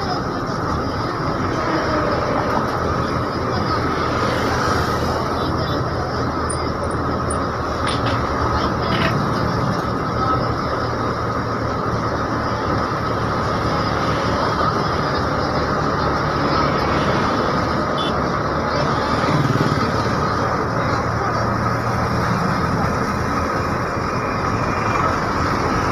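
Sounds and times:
bus engine and road noise: 0:00.0 - 0:25.9.

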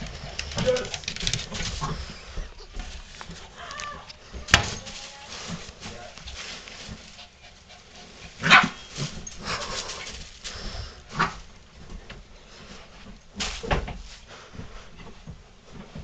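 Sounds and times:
dog barking: 0:08.4 - 0:08.9.

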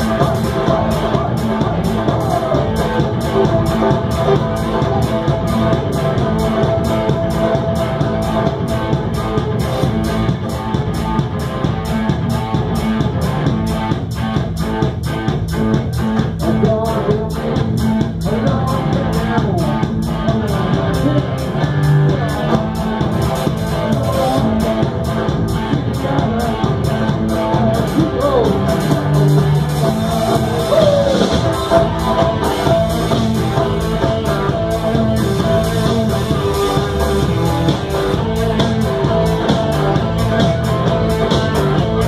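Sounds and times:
drums fast beat: 0:00.0 - 0:42.0
live band music: 0:00.0 - 0:42.0.

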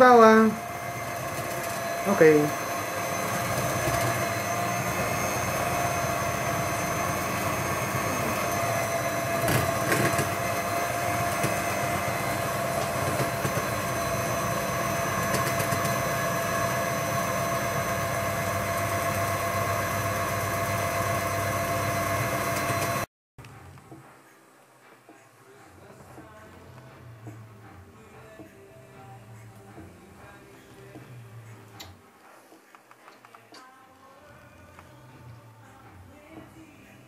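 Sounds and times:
electric hand mixer whining: 0:00.0 - 0:23.1.

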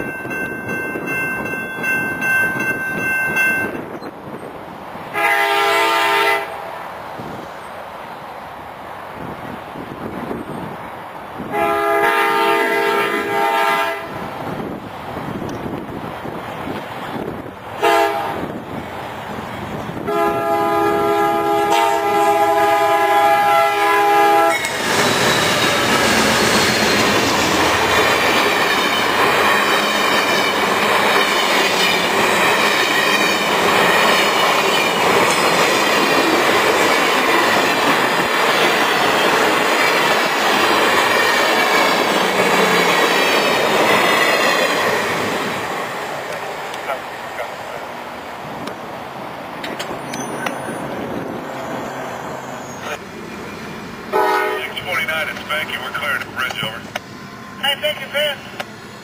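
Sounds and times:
train cars rumbling past: 0:00.0 - 0:59.0
train horn: 0:05.1 - 0:06.6, 0:11.5 - 0:14.2, 0:17.8 - 0:18.5, 0:20.0 - 0:24.7, 0:54.1 - 0:54.7.

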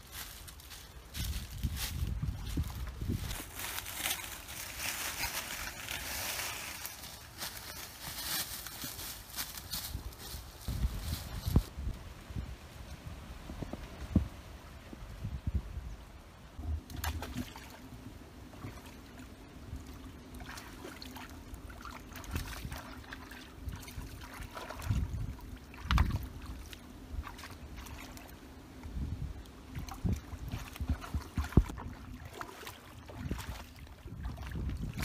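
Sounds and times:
water sloshing around rocks: 0:29.6 - 0:35.0.

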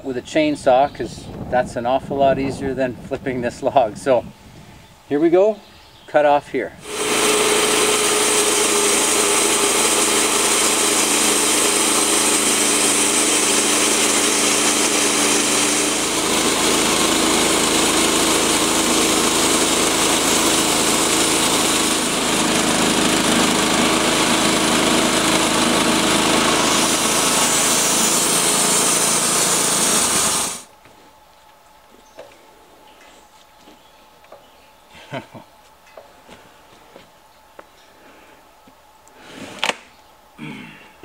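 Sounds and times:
band sawmill cutting log: 0:06.8 - 0:30.7.

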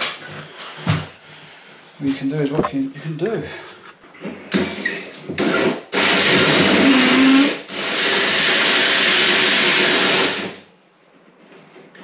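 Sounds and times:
cordless drill cutting: 0:05.4 - 0:10.6.

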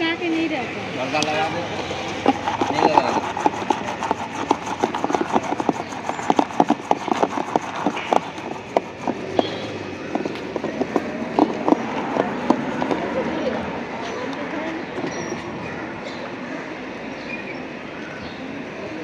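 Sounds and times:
utensils clattering and clinking: 0:01.8 - 0:13.3.

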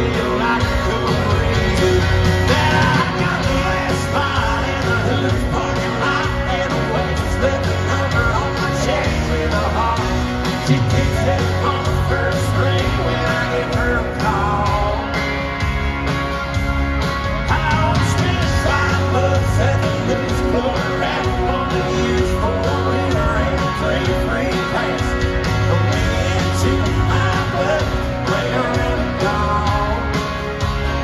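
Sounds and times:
person singing: 0:00.0 - 0:15.6, 0:17.4 - 0:30.5
live country-rock band playing: 0:00.0 - 0:31.0.

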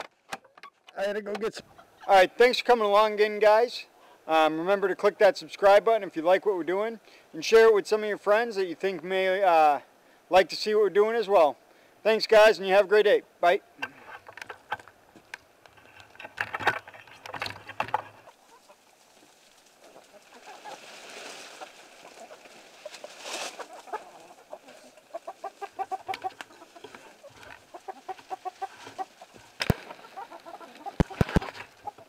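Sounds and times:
chickens clucking: 0:00.3 - 0:02.3, 0:13.8 - 0:32.0.

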